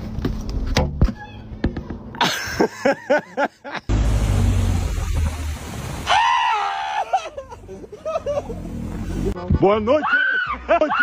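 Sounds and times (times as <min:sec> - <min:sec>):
person screaming: 0:06.1 - 0:07.3.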